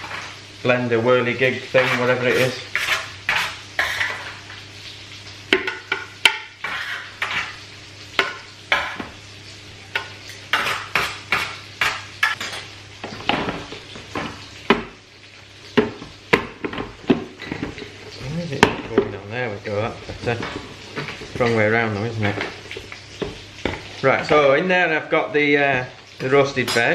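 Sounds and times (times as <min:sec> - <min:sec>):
scraping on metal baking tray: 0:01.7 - 0:04.5, 0:06.6 - 0:07.6, 0:10.5 - 0:12.4.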